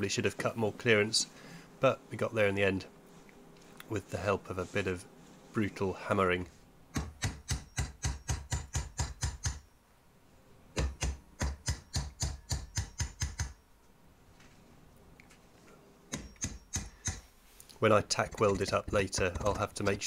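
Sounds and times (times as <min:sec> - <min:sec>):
hammer beating steel tube: 0:06.9 - 0:09.7, 0:10.8 - 0:13.6, 0:16.1 - 0:17.3.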